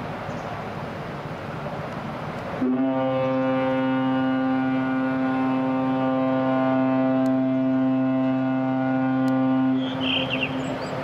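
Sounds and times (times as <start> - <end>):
ship's whistle blast: 2.6 - 10.7.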